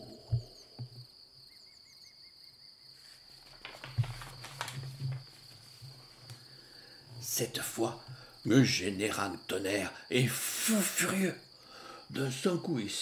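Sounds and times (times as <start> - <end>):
book pages rustling: 3.0 - 6.5.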